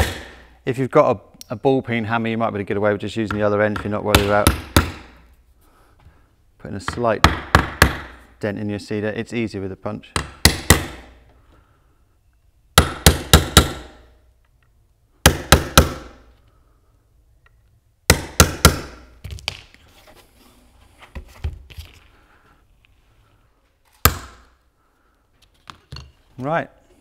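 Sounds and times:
hammer striking nail punch: 0:00.0 - 0:00.4, 0:03.8 - 0:05.2, 0:07.2 - 0:08.2, 0:10.2 - 0:11.1, 0:12.8 - 0:14.0, 0:15.2 - 0:16.2, 0:18.1 - 0:19.0.

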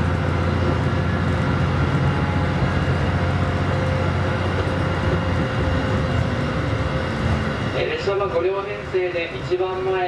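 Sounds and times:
diesel train engine rumble: 0:00.0 - 0:10.0
train wheels on rails: 0:00.0 - 0:10.0.

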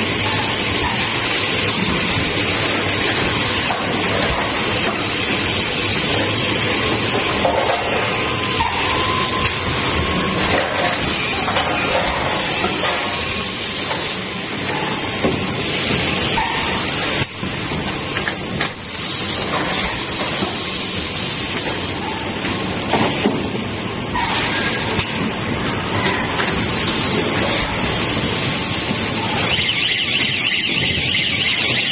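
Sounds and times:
compressed air hissing: 0:18.7 - 0:22.0, 0:26.5 - 0:31.9
machine noise: 0:24.1 - 0:31.9.

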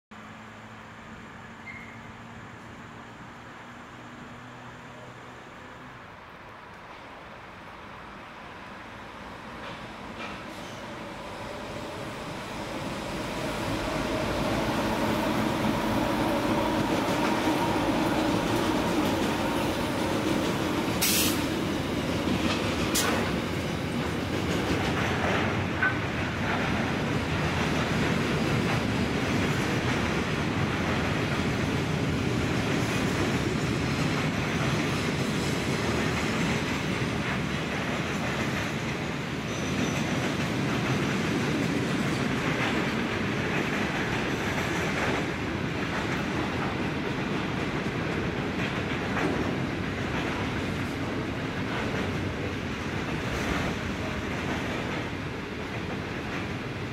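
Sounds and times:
train wheels clattering on rail: 0:09.3 - 0:56.9
locomotive engine hum: 0:09.6 - 0:34.9.

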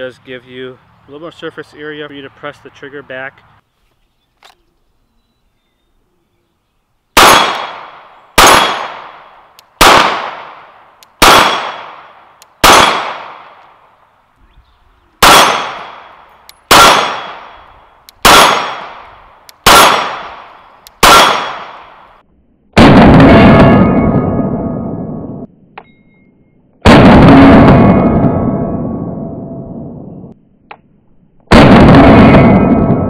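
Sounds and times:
pistol shots: 0:07.2 - 0:13.8, 0:15.2 - 0:22.1.

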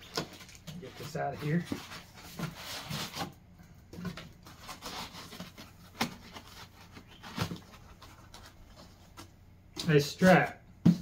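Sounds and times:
cardboard rubbing and scraping: 0:00.2 - 0:03.4, 0:04.4 - 0:09.2.

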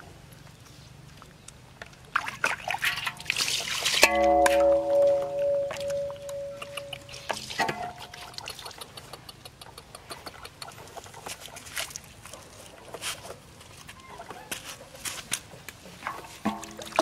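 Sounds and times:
water splashing on concrete: 0:01.9 - 0:09.0, 0:16.2 - 0:17.0.

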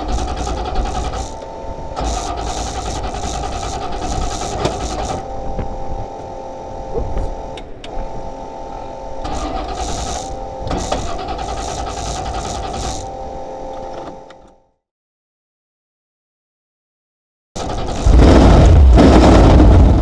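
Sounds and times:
starter cranking engine: 0:00.0 - 0:05.3, 0:09.2 - 0:13.1, 0:17.6 - 0:20.0.

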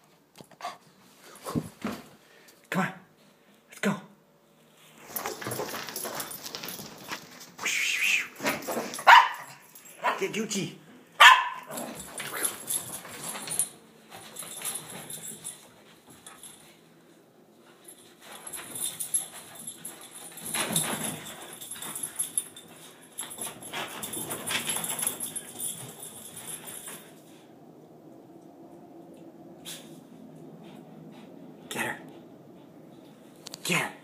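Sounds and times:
dogs play-fighting noises: 0:04.9 - 0:07.8, 0:11.2 - 0:33.6.

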